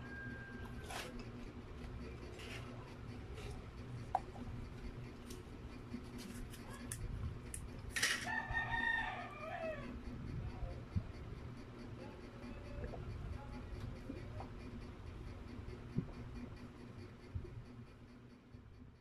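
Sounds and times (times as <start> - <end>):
rooster crowing: 0.0 - 1.1, 8.2 - 10.0.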